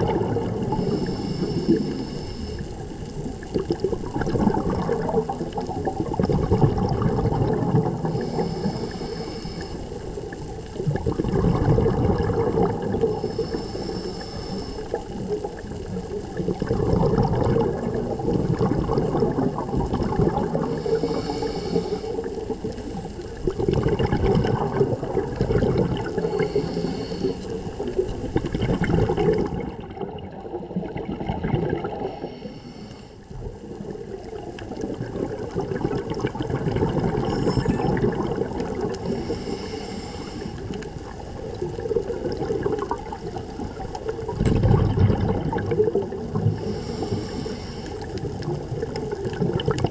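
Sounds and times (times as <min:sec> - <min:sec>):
exhaled bubbles gurgling underwater: 0:00.0 - 0:49.9
regulator inhalation hiss: 0:00.8 - 0:02.9, 0:08.2 - 0:10.1, 0:13.2 - 0:15.1, 0:20.7 - 0:22.4, 0:26.2 - 0:27.8, 0:32.2 - 0:33.2, 0:39.0 - 0:40.8, 0:46.5 - 0:48.1.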